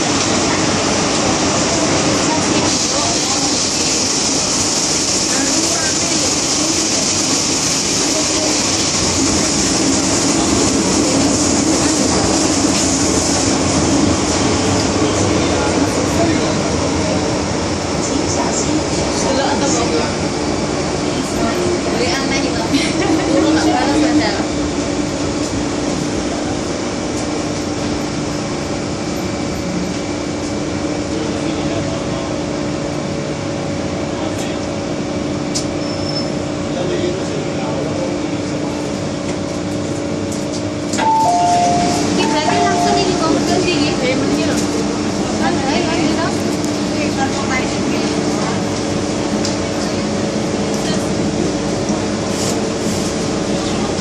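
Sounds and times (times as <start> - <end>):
train wheels on rails: 0.0 - 32.1, 37.2 - 54.0
hiss: 2.6 - 13.6.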